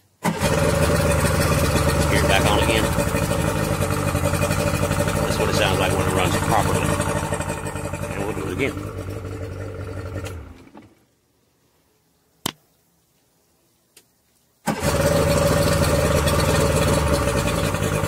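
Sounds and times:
outboard engine running: 0:00.2 - 0:10.9, 0:14.7 - 0:18.0.

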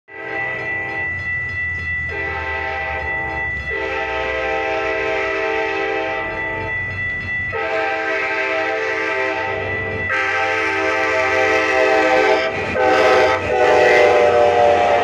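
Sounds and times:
crossing warning bell ringing: 0:00.1 - 0:15.0
train rumbling past: 0:00.1 - 0:15.0
train horn blasts: 0:02.1 - 0:03.1, 0:03.7 - 0:06.4, 0:07.5 - 0:15.0.

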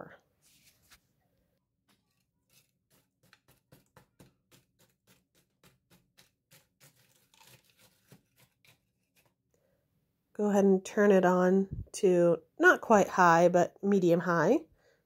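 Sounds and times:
spoon stirring frozen berries: 0:01.8 - 0:09.4.

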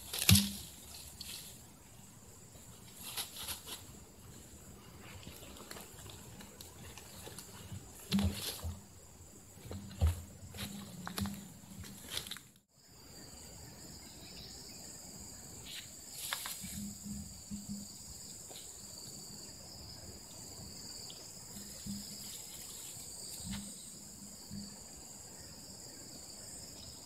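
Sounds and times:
insects trilling: 0:00.0 - 0:27.0.

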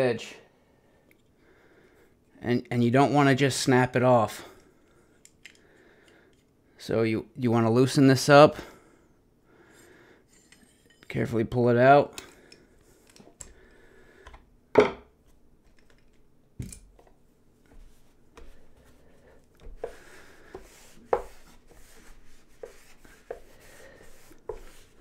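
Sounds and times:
tools knocking on wooden board: 0:14.8 - 0:15.1
cloth rubbing on sharpening plates: 0:17.7 - 0:25.0.

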